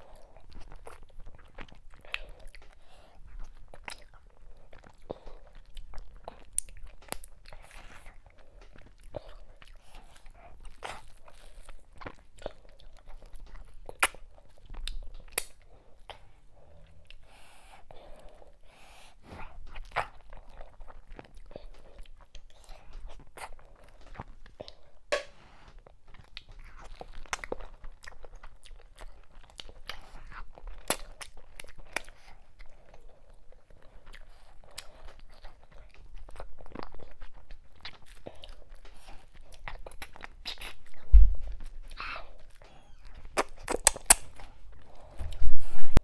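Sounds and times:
wet chewing and lip smacking: 0.0s - 46.0s
dull low thumps: 40.9s - 42.0s.

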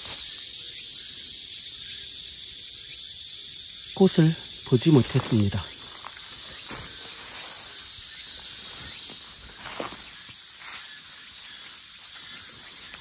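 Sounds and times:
insects chorus: 0.0s - 13.0s
soft rustles or footsteps: 5.2s - 13.0s.

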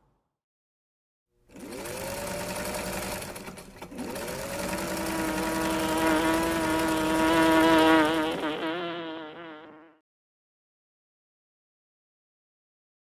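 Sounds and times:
sewing machine whine: 1.5s - 8.6s.

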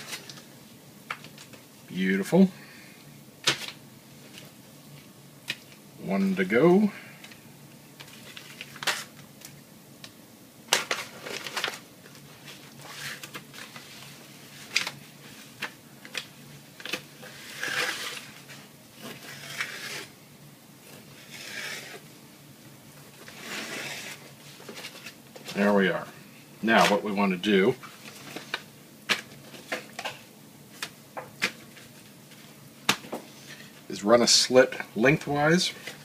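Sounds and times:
paper rustling: 10.7s - 20.1s.

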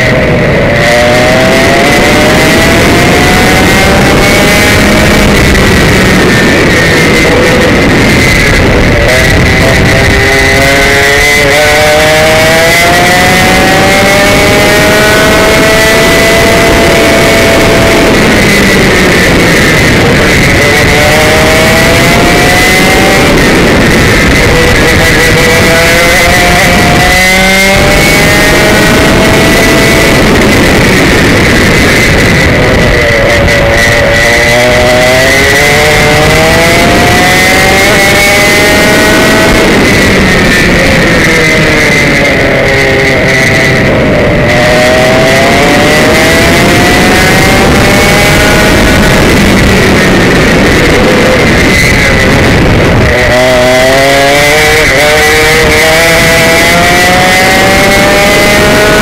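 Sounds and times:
kart engine buzzing: 0.0s - 59.0s.

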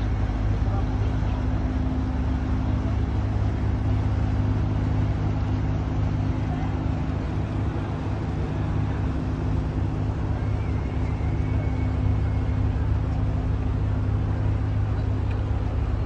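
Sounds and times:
boat engine running: 0.0s - 16.0s.

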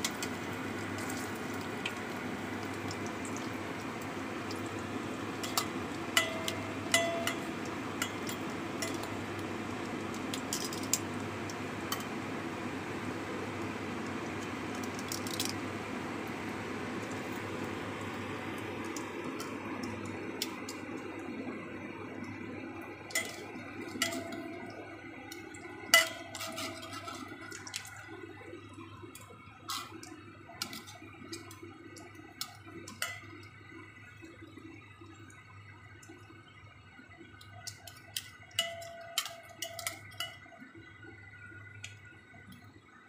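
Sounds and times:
oil sizzling and popping: 0.0s - 42.7s
metal tongs clicking on pan: 5.4s - 9.2s, 37.7s - 40.4s.

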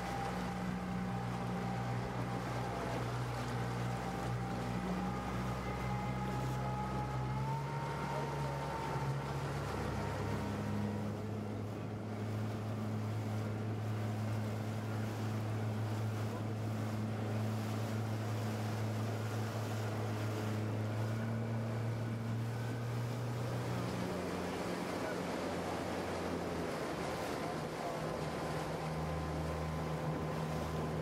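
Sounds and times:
motorboat engine humming: 0.0s - 31.0s
water rushing past hull: 0.0s - 31.0s.

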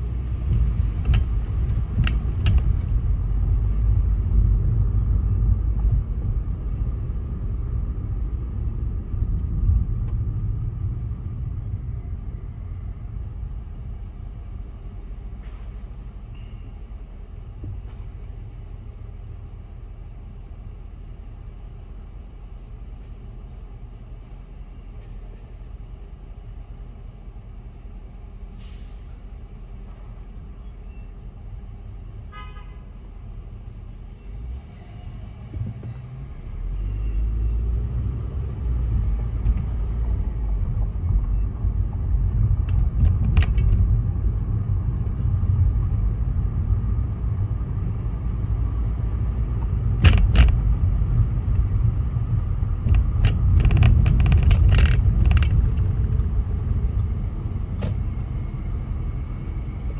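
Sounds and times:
car engine rumble from inside: 0.0s - 59.9s
short hiss: 28.6s - 29.3s.

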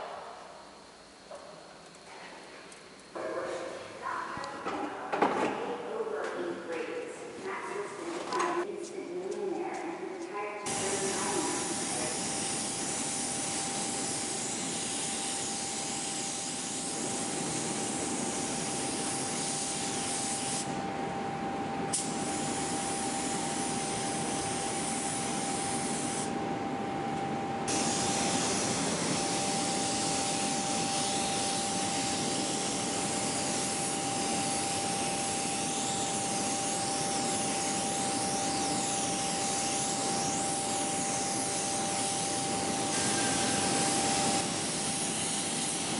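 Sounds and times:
thin steady whine: 0.0s - 5.0s, 5.8s - 45.9s
paint spray gun hissing: 10.7s - 20.7s, 21.9s - 26.3s, 27.7s - 45.9s.

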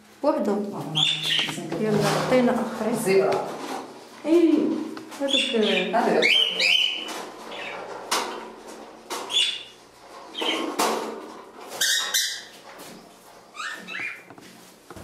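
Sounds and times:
small birds chirping: 0.8s - 1.9s, 5.2s - 8.5s, 9.2s - 10.7s, 13.5s - 14.3s.

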